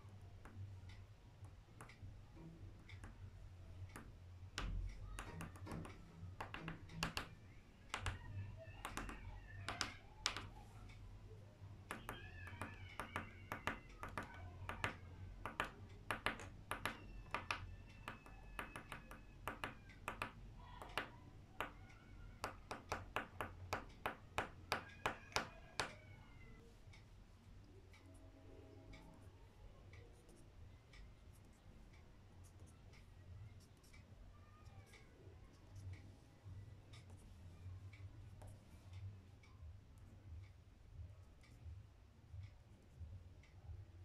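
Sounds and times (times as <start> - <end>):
pencil tapping on paper: 2.8 - 10.7, 11.8 - 26.1.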